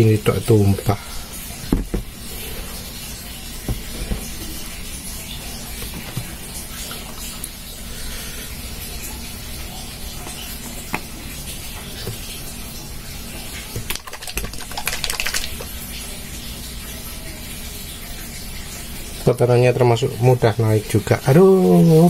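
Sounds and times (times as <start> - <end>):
glass bottle handling: 1.7 - 2.1.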